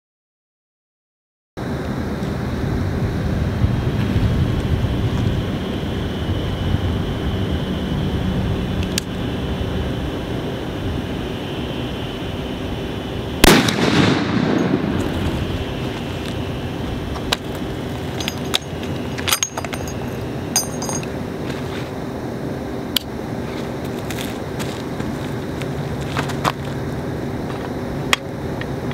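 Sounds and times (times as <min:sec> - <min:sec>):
rifle shot echoing: 0:13.4 - 0:15.0.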